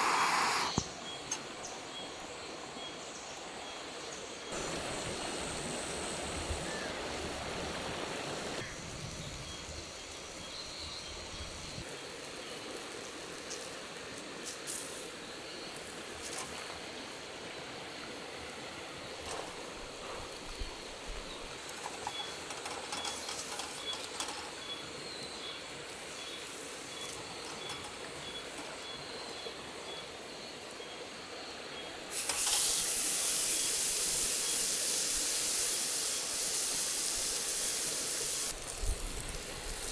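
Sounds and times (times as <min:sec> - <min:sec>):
steak sizzling loudly: 0:00.0 - 0:00.8, 0:32.1 - 0:39.9
small crackles: 0:21.2 - 0:24.8
food sizzling on grill plate: 0:32.1 - 0:39.9.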